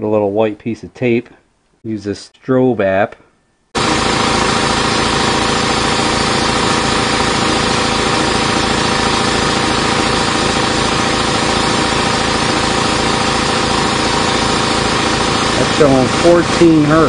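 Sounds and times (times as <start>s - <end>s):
air compressor running: 3.8s - 17.0s.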